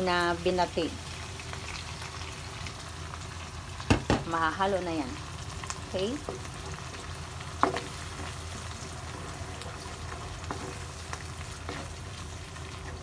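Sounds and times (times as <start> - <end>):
food sizzling in frying pan: 0.0 - 13.0
wooden spatula scraping pan: 7.6 - 12.1.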